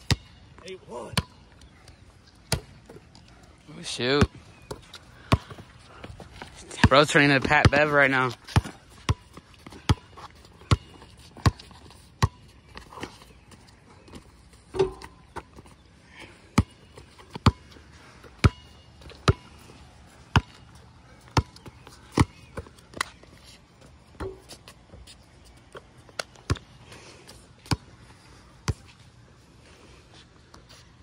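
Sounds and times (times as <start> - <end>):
basketball bouncing on concrete: 0.0 - 0.3, 2.5 - 2.7, 4.2 - 5.7, 6.7 - 12.9, 14.7 - 15.7, 16.6 - 17.8, 18.4 - 19.6, 20.3 - 20.6, 21.3 - 23.1, 24.2 - 24.5
ball hitting rim: 14.7 - 15.2, 24.2 - 24.5.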